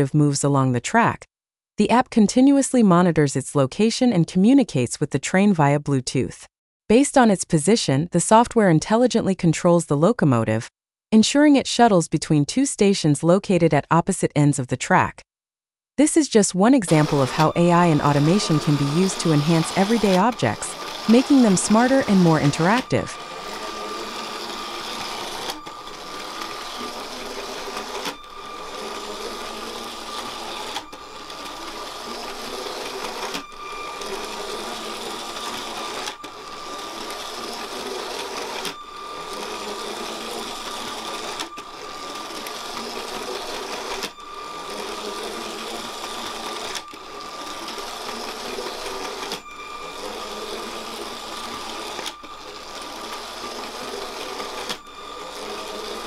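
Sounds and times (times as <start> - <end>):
steady high tone: 16.9 - 47.2, 49.3 - 56.0
toy train motor whirring: 16.9 - 56.0.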